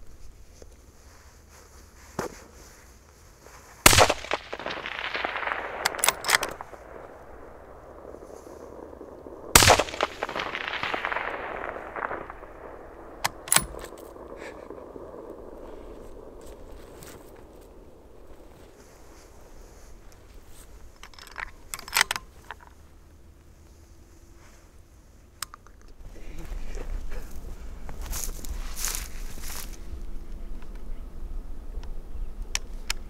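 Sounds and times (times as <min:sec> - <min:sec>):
rifle shots: 0:03.8 - 0:18.6
long rolling echo: 0:03.9 - 0:21.0.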